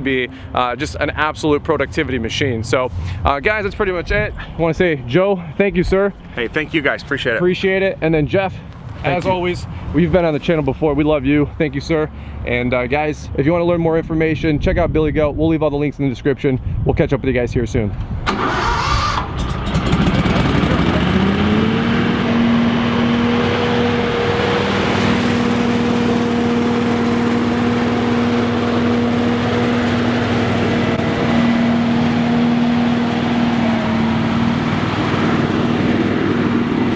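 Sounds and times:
leaf blower engine revving: 0:18.3 - 0:36.9.

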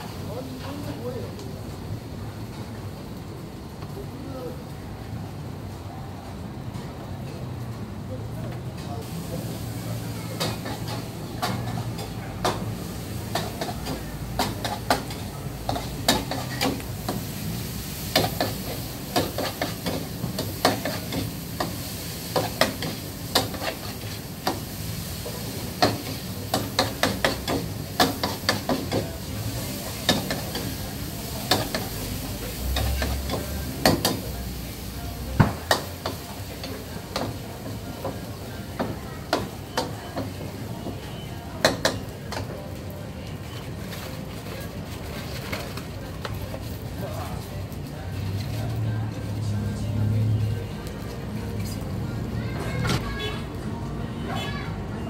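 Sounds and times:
wok sizzling: 0:09.0 - 0:55.0.

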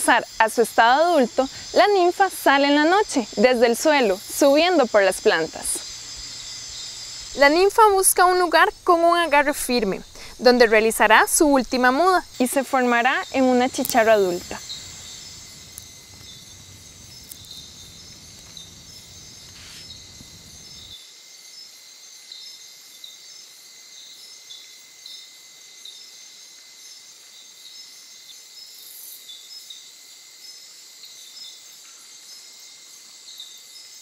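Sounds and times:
insect chirp: 0:00.0 - 0:34.0
insects trilling: 0:00.0 - 0:34.0
low rumble: 0:14.5 - 0:20.9.

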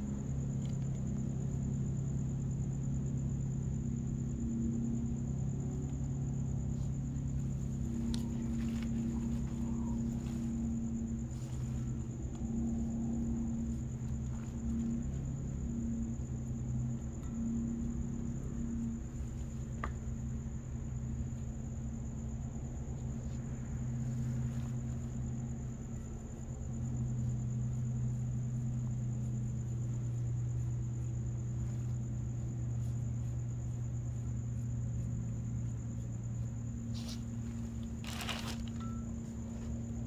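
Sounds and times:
crickets trilling: 0:00.0 - 0:40.0
low hum: 0:00.0 - 0:40.0
rustle: 0:06.6 - 0:16.3, 0:22.9 - 0:40.0.

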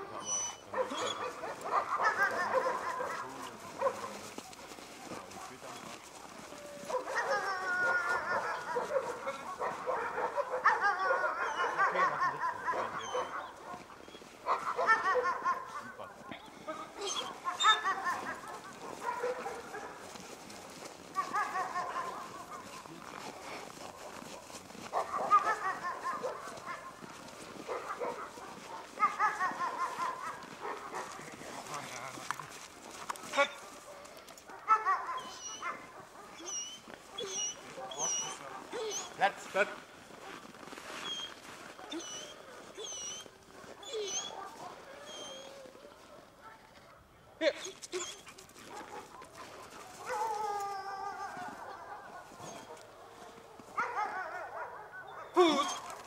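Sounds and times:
dog whining: 0:00.1 - 0:01.3, 0:17.0 - 0:18.4, 0:34.7 - 0:35.8, 0:36.4 - 0:39.2, 0:41.0 - 0:44.4, 0:45.0 - 0:45.7, 0:47.4 - 0:48.3, 0:55.2 - 0:56.0
dog yelping whines: 0:00.1 - 0:03.1, 0:06.9 - 0:09.1, 0:09.9 - 0:15.8, 0:17.0 - 0:19.4, 0:25.0 - 0:26.9, 0:34.7 - 0:39.2, 0:41.0 - 0:45.8, 0:47.4 - 0:48.3, 0:53.8 - 0:56.0.

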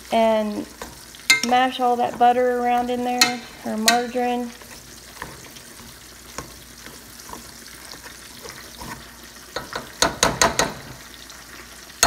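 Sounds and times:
potatoes squishing under masher: 0:00.7 - 0:09.2
masher clacking on pot: 0:09.6 - 0:10.9.

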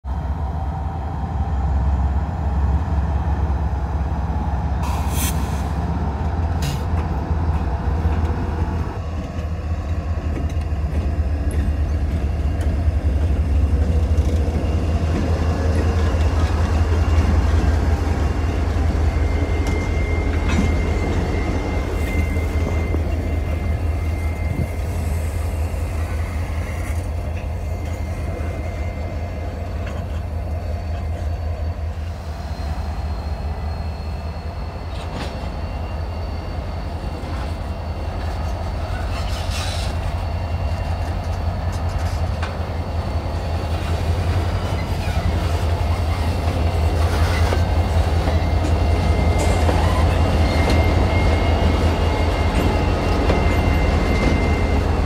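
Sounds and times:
diesel locomotives rumbling past: 0:00.0 - 0:55.0
thin high squeal: 0:18.5 - 0:55.0.

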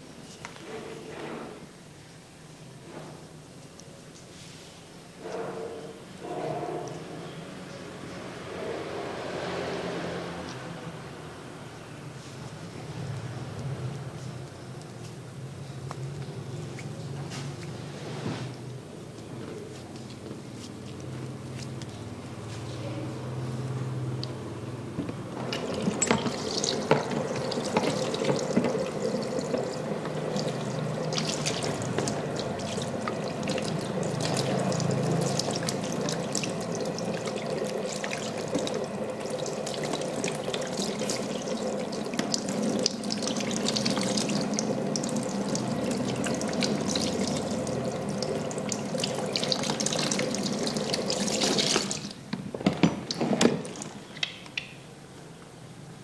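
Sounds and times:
water rushing from tap: 0:25.2 - 0:54.3.

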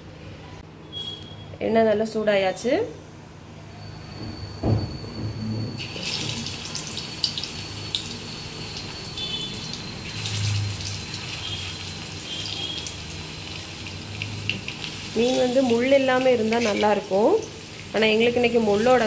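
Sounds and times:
fish sizzling in hot oil: 0:05.8 - 0:19.0
oil crackling and popping: 0:09.6 - 0:18.2.

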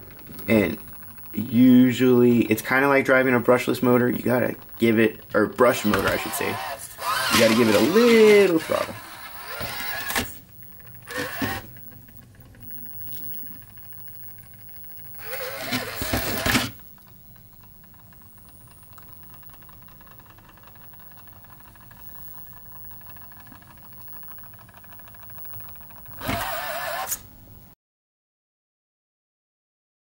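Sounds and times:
small electric motor whining: 0:03.7 - 0:17.0, 0:17.9 - 0:27.3.

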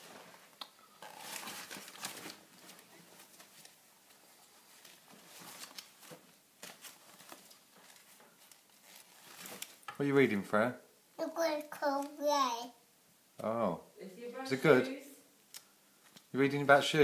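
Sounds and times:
magazine rustling and crinkling: 0:00.0 - 0:09.9.

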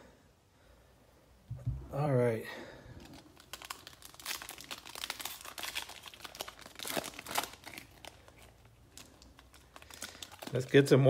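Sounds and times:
foil wrapper crinkling: 0:03.0 - 0:11.0.

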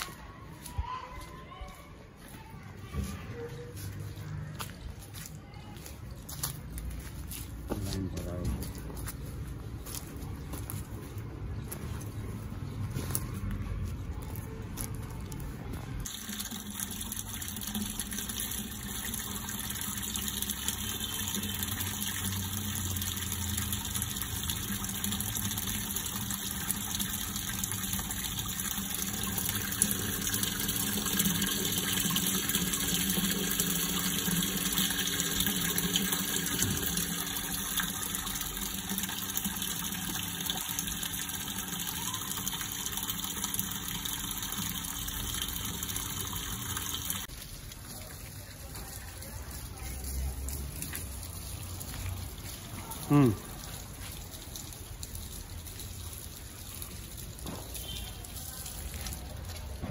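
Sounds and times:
water splashing into a tank: 0:16.0 - 0:59.9.

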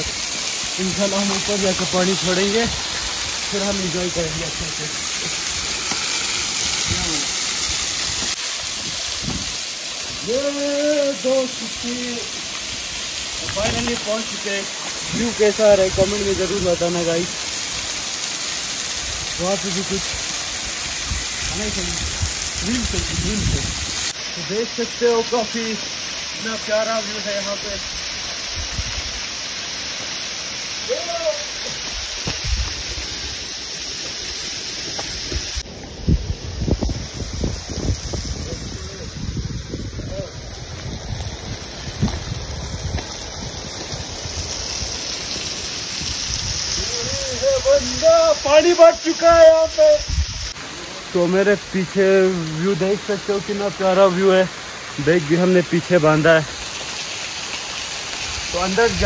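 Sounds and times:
waterfall splashing onto rocks: 0:00.0 - 0:59.0
man talking: 0:00.8 - 0:02.8, 0:03.5 - 0:05.4, 0:06.8 - 0:07.3, 0:10.2 - 0:12.3, 0:13.4 - 0:17.4, 0:19.4 - 0:20.2, 0:21.5 - 0:23.7, 0:24.3 - 0:27.9, 0:38.4 - 0:39.2, 0:40.0 - 0:40.5, 0:46.8 - 0:50.1, 0:50.7 - 0:56.5, 0:58.5 - 0:59.0.

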